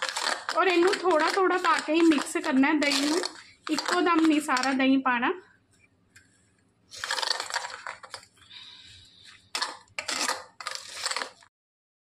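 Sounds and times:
metal spoon scraping steel bowl: 9.6s - 11.5s.

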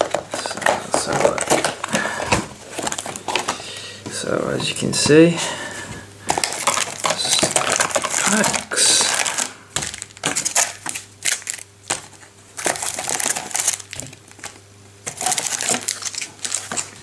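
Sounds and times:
foil packs crinkling: 0.0s - 5.4s, 6.2s - 17.0s.

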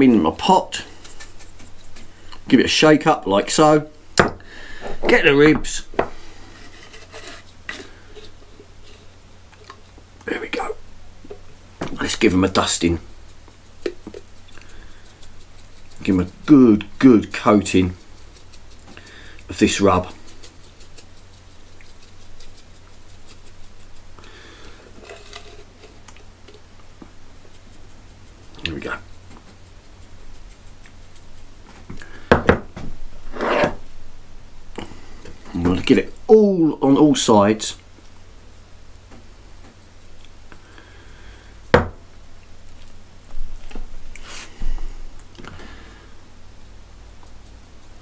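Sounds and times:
spice rattling in glass jar: 0.4s - 2.4s, 12.1s - 24.2s, 24.9s - 26.3s
granules pattering onto meat: 11.3s - 32.3s.

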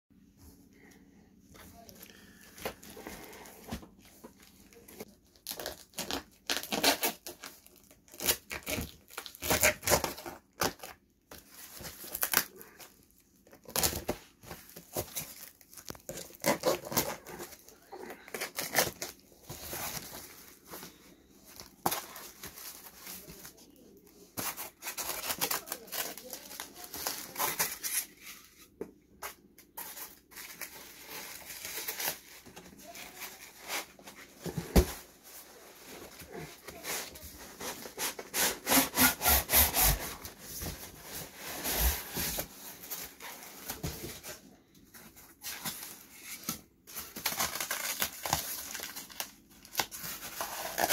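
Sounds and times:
plastic wrapping crinkling: 1.8s - 28.4s, 45.0s - 50.9s
tape and cardboard tearing: 5.4s - 7.5s, 8.1s - 11.0s, 16.1s - 17.6s, 36.8s - 40.8s, 46.4s - 50.9s.

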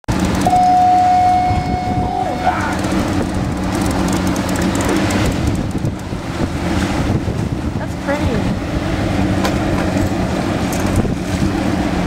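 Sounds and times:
boat engine running: 0.1s - 12.0s
wind and water rushing: 0.1s - 12.0s
high whistle-like tone: 0.5s - 2.6s.

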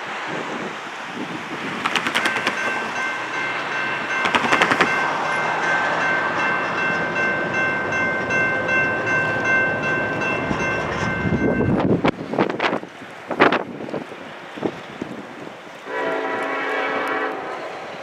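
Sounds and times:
crossing warning bell ringing: 1.9s - 12.1s.

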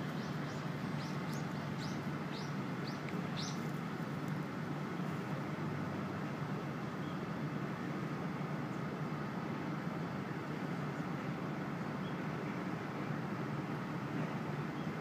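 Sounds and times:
outdoor background hum: 0.0s - 15.0s.

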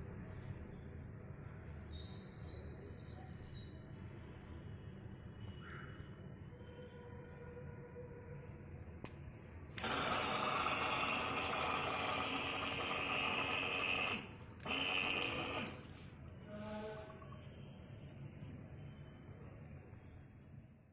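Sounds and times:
water pump motor humming: 9.8s - 17.6s.

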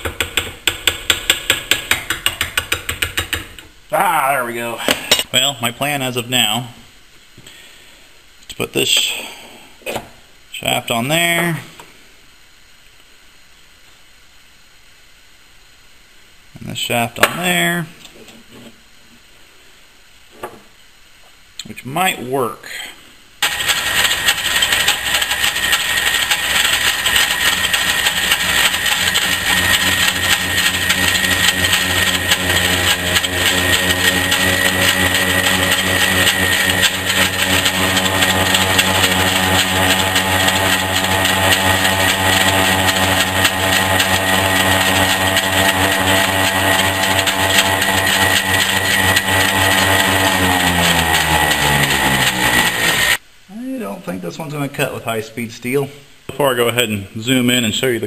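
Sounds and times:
grinder high whine: 23.4s - 53.2s
motor hum: 23.4s - 53.2s.

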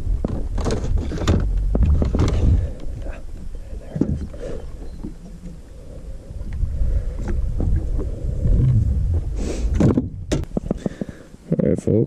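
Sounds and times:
wind on microphone: 0.0s - 10.6s
rush of noise: 5.7s - 10.3s.

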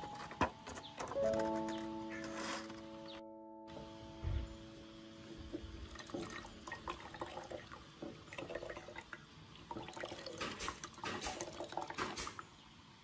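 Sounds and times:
water dripping into jar: 5.9s - 12.2s.

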